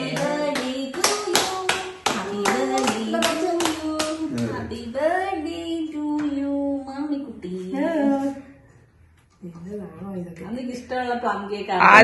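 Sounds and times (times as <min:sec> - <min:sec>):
group clapping in a beat: 0:00.0 - 0:04.8
voices singing: 0:00.0 - 0:08.5.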